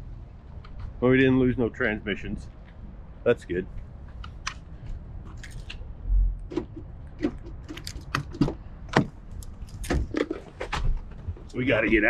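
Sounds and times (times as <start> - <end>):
sharp clicks and knocks: 5.3 - 11.6.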